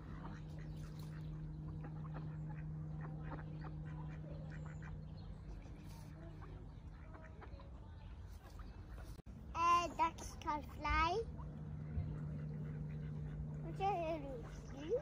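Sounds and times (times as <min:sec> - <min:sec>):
ducks quacking: 0:00.0 - 0:15.0
low steady hum: 0:00.0 - 0:15.0.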